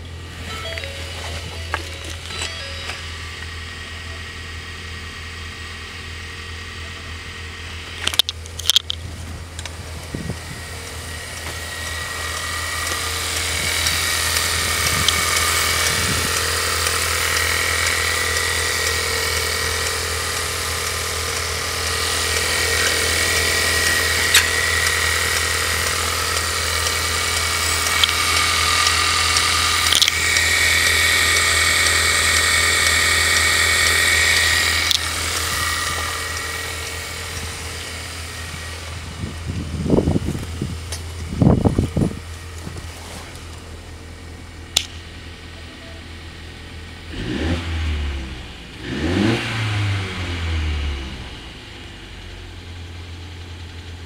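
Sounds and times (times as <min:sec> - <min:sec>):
car engine idling with whine: 0:00.0 - 0:54.0
sharp clicks: 0:08.0 - 0:09.8, 0:11.8 - 0:37.9, 0:44.7 - 0:45.0.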